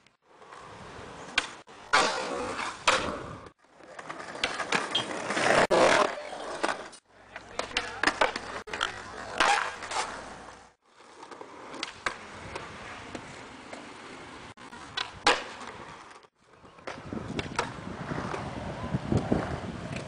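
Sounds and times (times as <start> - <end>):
skateboard wheels rolling on concrete: 0.0 - 20.0
skateboard clacking: 3.9 - 10.6, 14.6 - 20.0.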